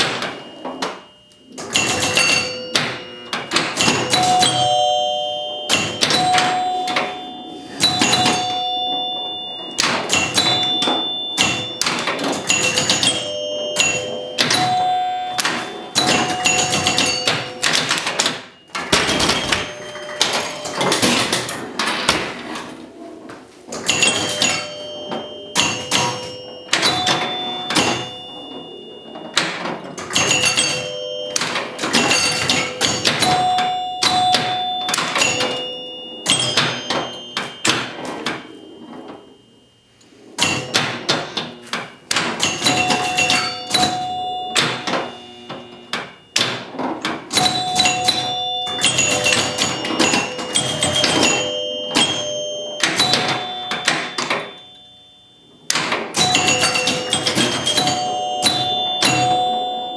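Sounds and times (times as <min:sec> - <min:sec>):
pinball mechanical clacks: 0:00.0 - 0:23.0, 0:23.7 - 0:59.9
pinball scoring chimes: 0:00.0 - 0:59.9.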